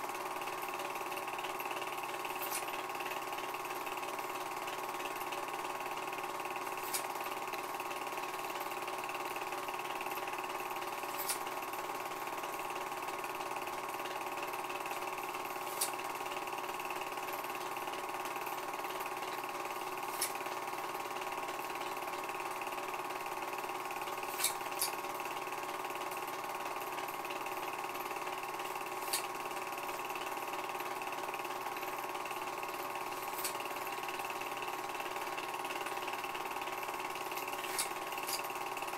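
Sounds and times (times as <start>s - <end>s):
film projector whirring: 0.0s - 38.9s
projector clicks: 6.8s - 7.6s, 24.3s - 25.0s, 29.0s - 29.4s.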